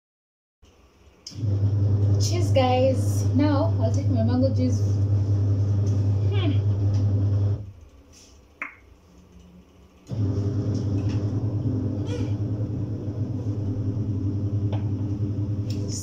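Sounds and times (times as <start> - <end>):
washing machine motor humming: 1.2 - 7.8, 10.0 - 16.0.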